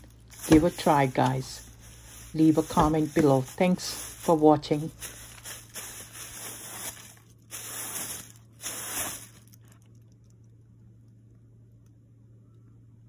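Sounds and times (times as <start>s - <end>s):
broom sweeping hard floor: 0.0s - 9.6s.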